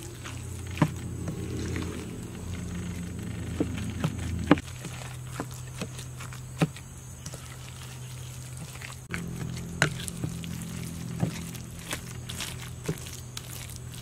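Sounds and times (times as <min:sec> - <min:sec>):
hands squishing wet mixture: 0:00.0 - 0:14.0
steady low hum: 0:00.0 - 0:14.0.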